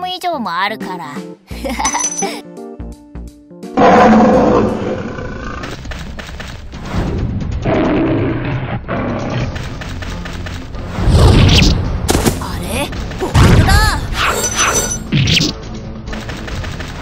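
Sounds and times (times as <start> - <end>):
background music: 0.0 - 17.0
big cat roaring: 3.8 - 5.8, 7.6 - 9.6.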